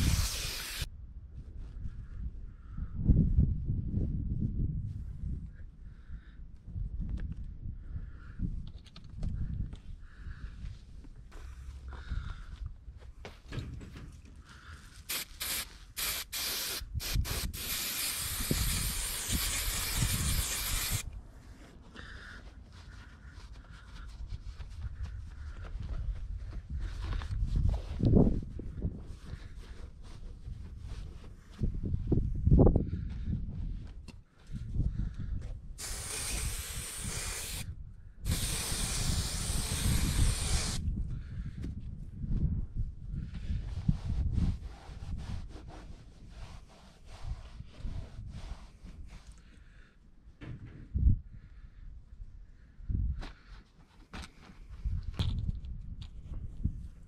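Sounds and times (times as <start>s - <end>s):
aerosol spray can hissing: 0.0s - 0.9s, 15.1s - 21.0s, 35.8s - 37.7s, 38.3s - 40.8s.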